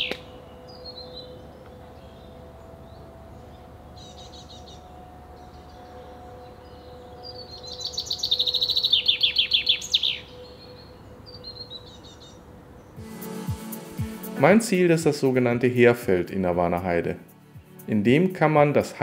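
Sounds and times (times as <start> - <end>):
chaffinch chirps: 0.0 - 15.6
chaffinch song phrase: 13.0 - 19.0.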